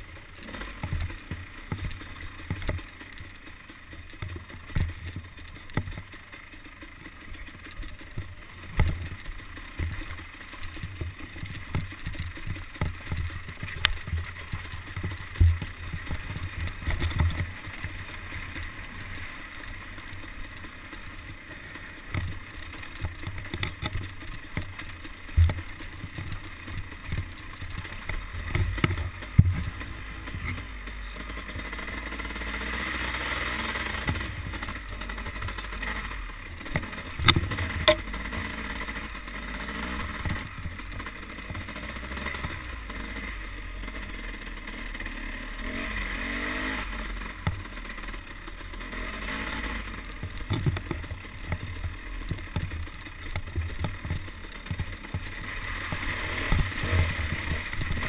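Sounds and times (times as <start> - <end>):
bike knocking over bumps: 0.0 - 21.4, 22.0 - 31.8, 33.4 - 39.1, 49.3 - 58.0
dirt bike engine revving: 0.0 - 58.0.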